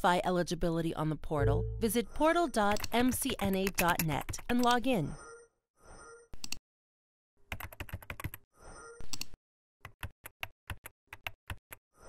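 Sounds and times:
keyboard typing: 0:02.6 - 0:04.8, 0:07.5 - 0:08.4, 0:09.1 - 0:11.8.

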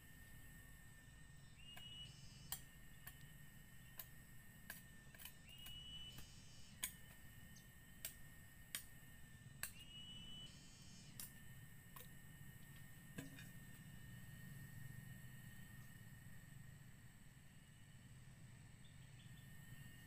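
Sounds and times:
bamboo poles clicking: 0:01.7 - 0:07.2, 0:08.0 - 0:08.9, 0:09.6 - 0:09.8.

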